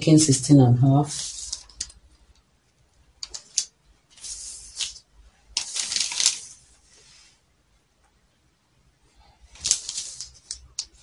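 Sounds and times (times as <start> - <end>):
paper rustling: 1.0 - 2.0, 3.2 - 7.3, 9.4 - 11.0.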